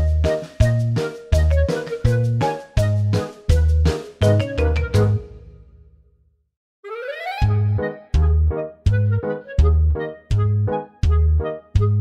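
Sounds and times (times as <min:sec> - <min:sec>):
music with strong bass: 0:00.0 - 0:05.3.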